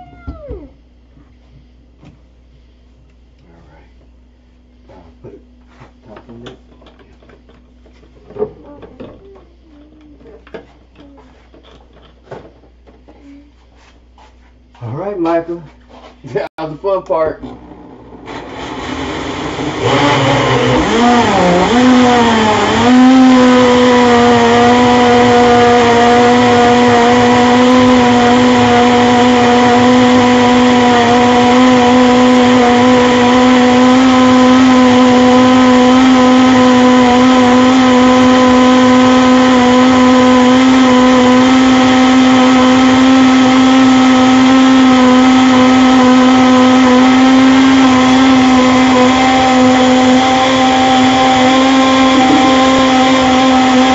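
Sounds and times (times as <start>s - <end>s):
blender motor whining: 0.0s - 0.8s, 17.4s - 53.9s.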